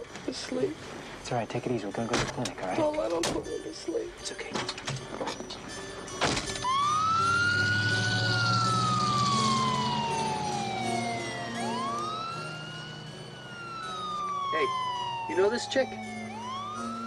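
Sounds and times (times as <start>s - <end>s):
low engine rumble: 6.0s - 17.0s
ambulance siren wailing: 6.1s - 17.0s.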